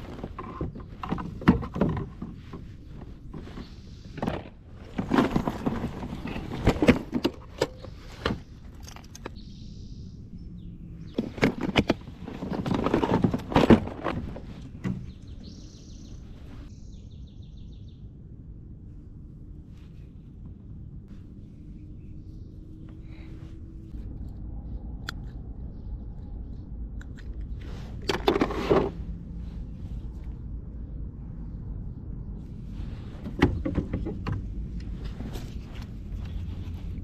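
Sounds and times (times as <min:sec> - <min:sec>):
plastic tackle box rummaged through: 0:04.2 - 0:07.8, 0:11.2 - 0:14.7
bird chirping: 0:07.6 - 0:11.3, 0:14.6 - 0:18.1, 0:24.2 - 0:27.8.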